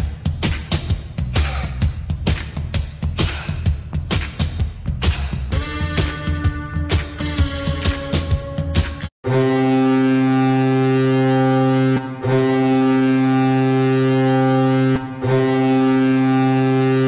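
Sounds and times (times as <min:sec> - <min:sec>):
low goal horn blasts: 0:05.5 - 0:17.0.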